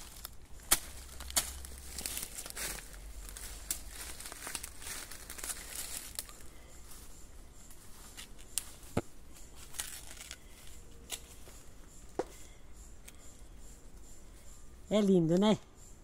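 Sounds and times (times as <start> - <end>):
dry husk cracking and tearing: 0.0 - 6.4, 9.7 - 10.4
soft rustling: 0.0 - 7.1
sharp snaps: 0.2 - 2.7.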